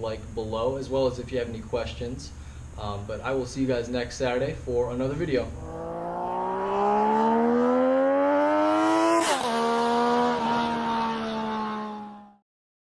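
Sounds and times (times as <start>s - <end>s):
motorcycle engine accelerating: 5.2s - 12.4s.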